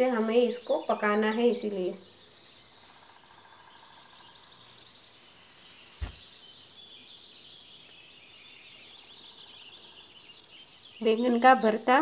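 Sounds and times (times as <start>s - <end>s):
faint birds chirping: 0.0s - 12.0s
sharp low thump: 6.0s - 6.3s.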